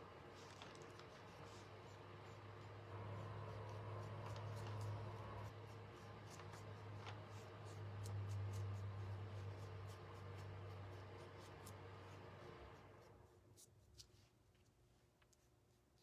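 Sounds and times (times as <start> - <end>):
paintbrush scratchy strokes: 0.0 - 16.0
steady low hum: 0.0 - 16.0.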